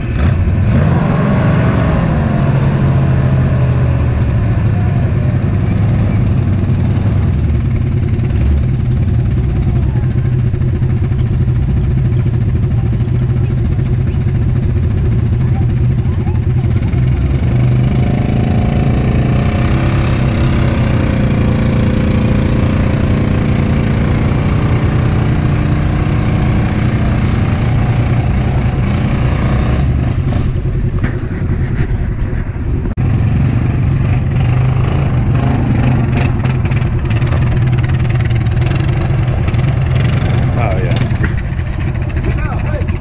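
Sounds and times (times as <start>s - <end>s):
atv engine under throttle: 0.0s - 43.0s
pickup truck engine running: 0.0s - 43.0s.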